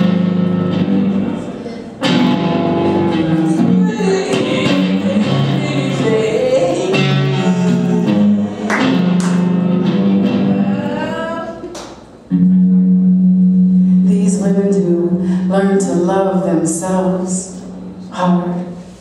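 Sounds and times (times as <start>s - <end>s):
electric guitar: 0.0s - 15.6s
woman's wordless singing: 3.2s - 8.4s, 10.4s - 11.7s.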